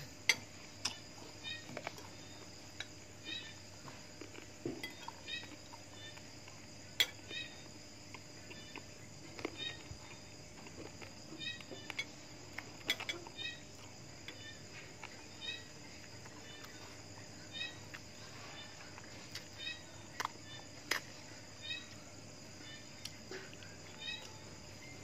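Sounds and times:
high chirps of night animals: 0.0s - 4.0s, 4.6s - 25.0s
faint hum: 0.0s - 25.0s
chewing: 3.8s - 6.7s.

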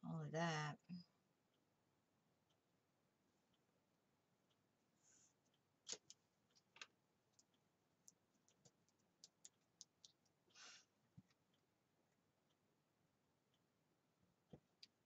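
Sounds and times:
faint clicks and taps: 5.3s - 10.4s, 11.1s - 12.6s, 14.4s - 15.0s.

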